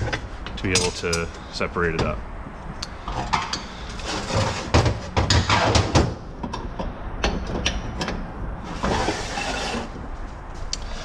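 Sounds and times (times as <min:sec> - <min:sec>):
metal press clanking: 0:00.0 - 0:02.2.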